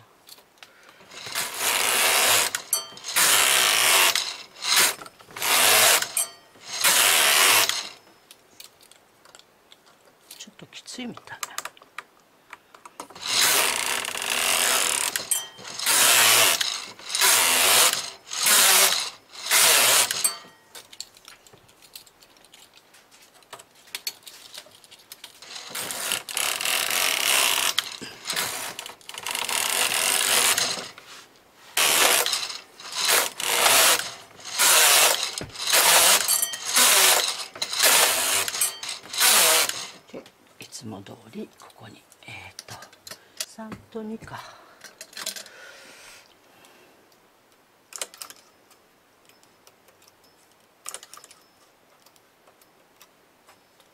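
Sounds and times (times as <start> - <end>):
knitting machine carriage passes: 1.1 - 8.0, 13.2 - 20.6, 25.4 - 31.0, 31.8 - 40.0.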